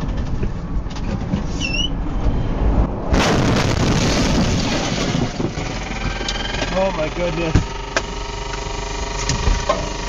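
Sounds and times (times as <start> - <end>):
truck driving on road: 0.0 - 10.0
windshield crash and shatter: 3.2 - 5.8.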